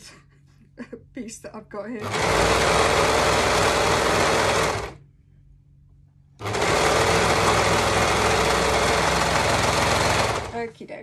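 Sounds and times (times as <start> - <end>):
overlocker sewing machine running: 2.0 - 5.0, 6.4 - 10.6.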